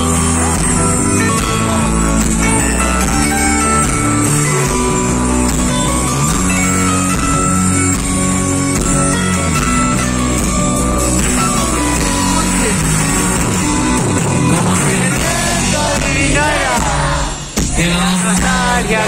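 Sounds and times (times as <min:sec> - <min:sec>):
live band playing: 0:00.0 - 0:19.0
voices singing: 0:14.4 - 0:19.0.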